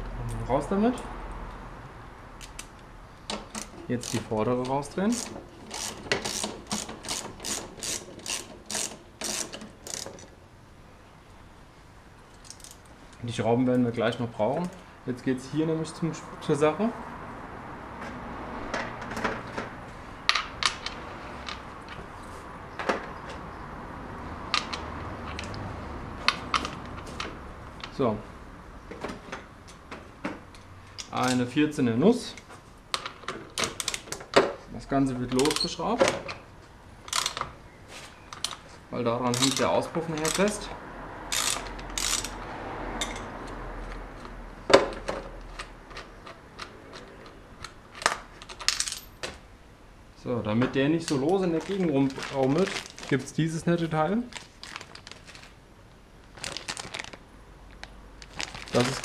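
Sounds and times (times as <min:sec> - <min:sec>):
metal parts clicking and knocking: 0:02.4 - 0:10.3, 0:12.3 - 0:12.9, 0:35.3 - 0:36.4, 0:37.1 - 0:37.5, 0:39.3 - 0:40.7, 0:41.3 - 0:42.4, 0:43.0 - 0:43.3, 0:44.7 - 0:49.4
ratchet clicking: 0:05.1 - 0:10.3, 0:39.4 - 0:40.6, 0:41.3 - 0:42.4.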